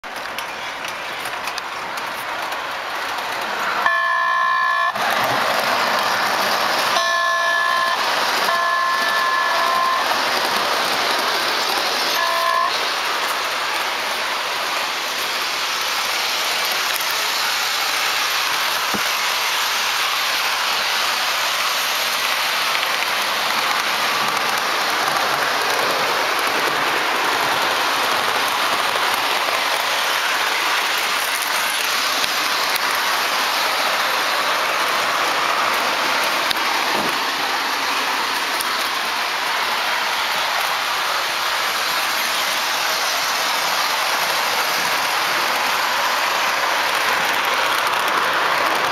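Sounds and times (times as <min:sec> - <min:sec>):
model train rumbling on track: 0:00.0 - 0:48.9
multi-tone train horn: 0:03.8 - 0:05.0, 0:06.9 - 0:10.1, 0:12.1 - 0:12.8.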